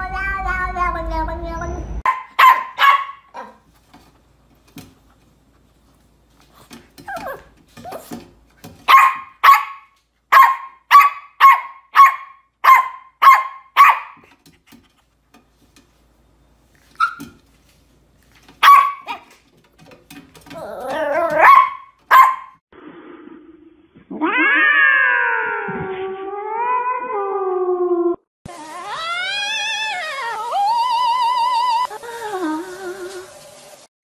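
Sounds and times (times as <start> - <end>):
puppy yapping: 2.0 - 3.6, 8.9 - 14.2, 18.6 - 19.4, 20.5 - 22.6.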